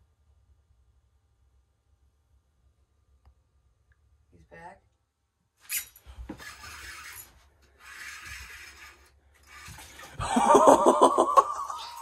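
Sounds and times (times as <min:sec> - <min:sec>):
rasping scrapes: 0:05.7 - 0:10.2.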